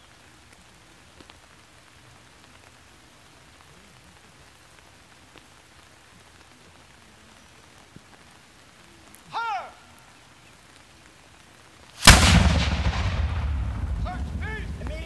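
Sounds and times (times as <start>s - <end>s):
faint outdoor hiss: 0.0s - 15.0s
small faint ticks: 0.1s - 2.8s, 3.5s - 9.3s.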